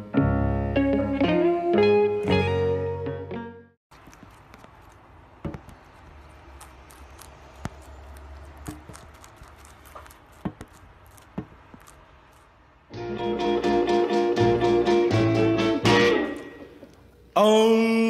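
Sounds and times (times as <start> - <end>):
rabbit chewing celery crunches: 3.9 - 12.9.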